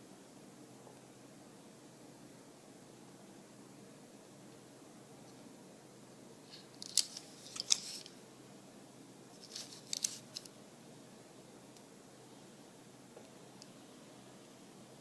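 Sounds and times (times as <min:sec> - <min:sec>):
toy car clicks and scrapes: 0:06.6 - 0:08.1, 0:09.4 - 0:10.5.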